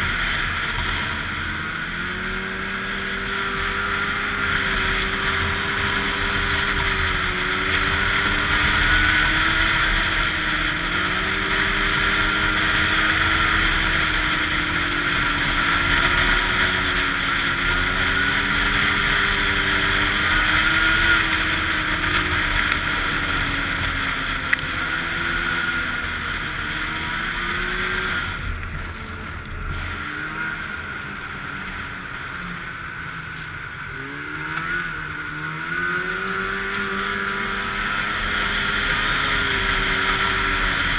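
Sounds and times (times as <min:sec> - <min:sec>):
snowmobile engine running: 0:00.0 - 0:40.9.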